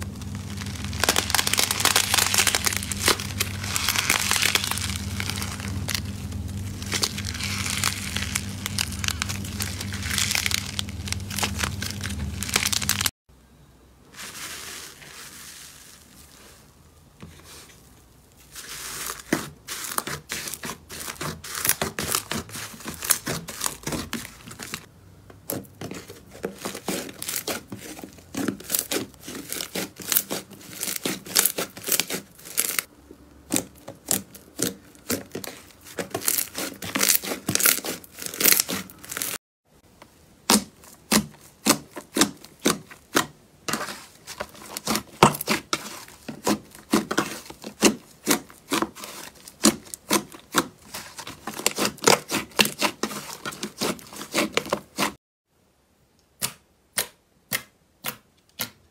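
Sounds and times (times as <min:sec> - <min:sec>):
slime crackling and popping: 0:00.0 - 0:13.1, 0:28.6 - 0:32.9, 0:33.5 - 0:39.4.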